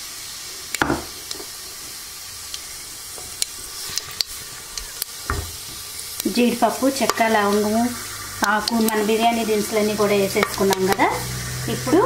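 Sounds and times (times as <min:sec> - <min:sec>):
spices sizzling in hot oil: 0:00.0 - 0:12.0
knock: 0:00.8 - 0:01.1.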